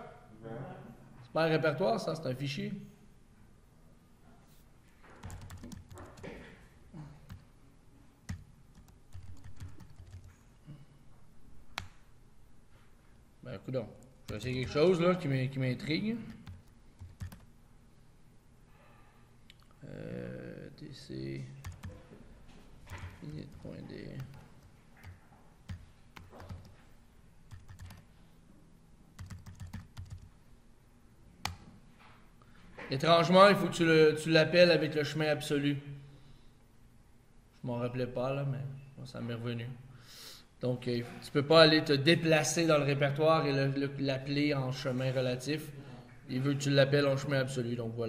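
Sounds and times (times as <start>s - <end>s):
keyboard keys clicking: 5.2s - 6.3s, 8.3s - 10.3s, 16.3s - 17.5s, 21.6s - 22.0s, 25.0s - 26.8s, 27.5s - 28.0s, 29.2s - 30.3s.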